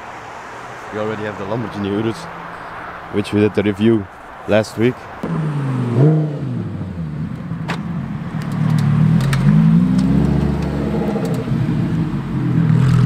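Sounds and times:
car engine revving past: 5.2 - 7.3, 8.5 - 13.0.

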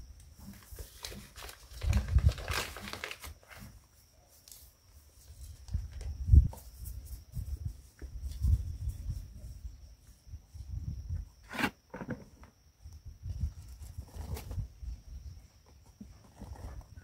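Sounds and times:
sharp paper crinkles: 0.5 - 3.7
paper bag rustling: 0.5 - 3.8.

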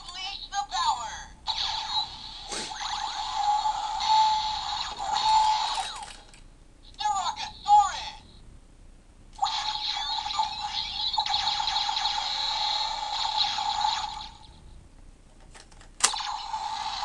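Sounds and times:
toy electronic sound effect: 1.5 - 6.3, 9.4 - 14.6, 16.1 - 17.0.

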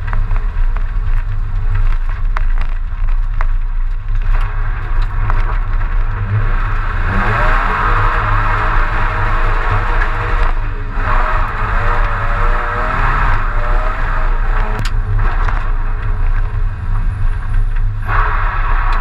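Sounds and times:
car engine running hard: 0.0 - 19.0.

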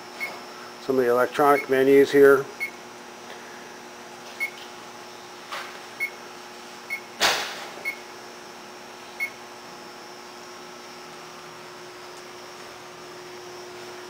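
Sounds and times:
steady electrical hum: 0.0 - 14.0
keypad beeps: 1.5 - 1.8, 4.4 - 4.6, 6.9 - 7.1.

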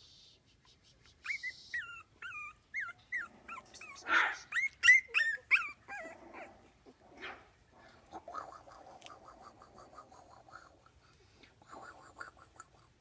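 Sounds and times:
puppy yelp: 1.2 - 6.5
puppies squeaking and yipping: 1.2 - 6.7.

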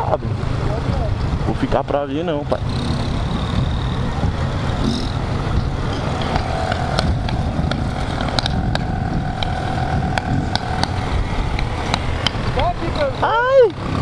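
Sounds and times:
motorcycle engines running: 0.0 - 14.0
wind on microphone: 0.0 - 14.0.

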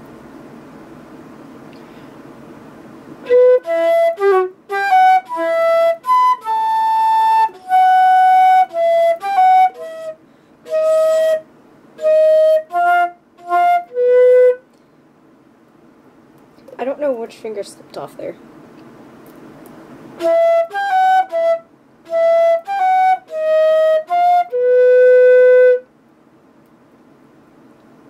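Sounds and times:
flute melody: 3.2 - 14.6, 20.2 - 25.9.

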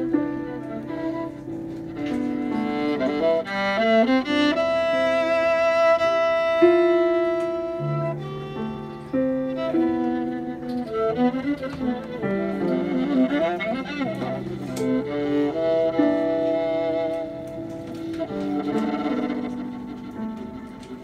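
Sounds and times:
bowed violin melody: 0.0 - 21.0.

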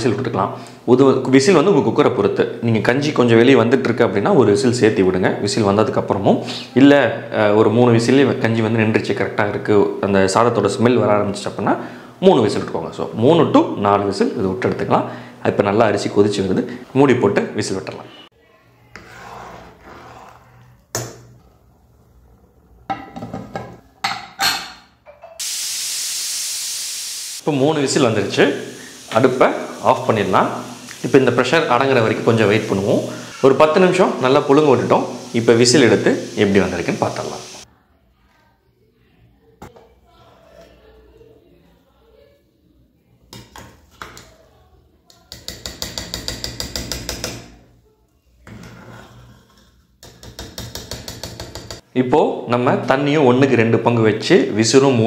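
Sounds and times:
metal lid clanks and knocks: 22.9 - 25.4
pressure cooker whistle hissing steam: 25.4 - 37.7.

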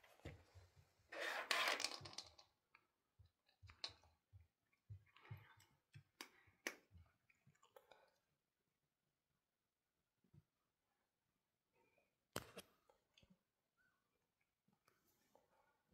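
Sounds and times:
rustling scrape: 1.1 - 2.0.

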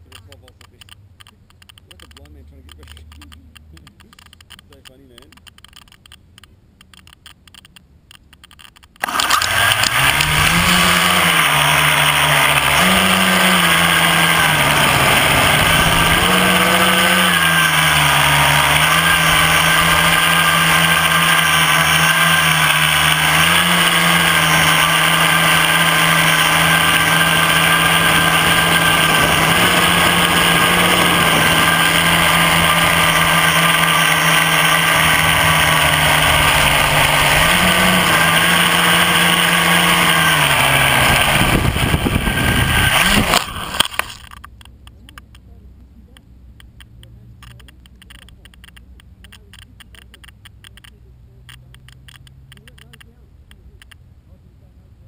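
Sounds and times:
drone motors buzzing whine: 9.0 - 44.4.

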